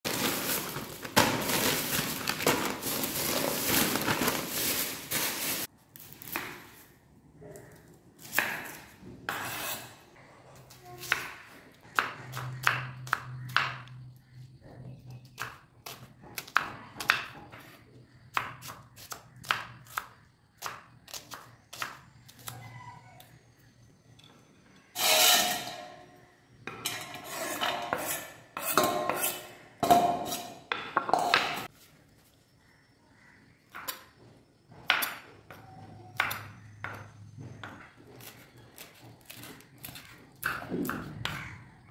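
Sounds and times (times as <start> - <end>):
plastic packet crinkling: 0.1 - 5.7
knife scraping onion into steel bowl: 9.3 - 10.0, 25.0 - 26.0, 26.8 - 30.7.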